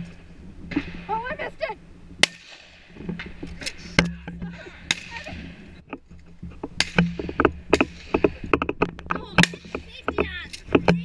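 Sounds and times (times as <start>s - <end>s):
sharp cracks and knocks: 2.2s - 11.0s.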